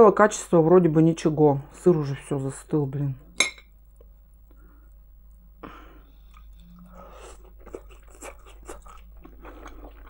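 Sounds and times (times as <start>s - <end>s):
person chewing food: 6.0s - 10.0s.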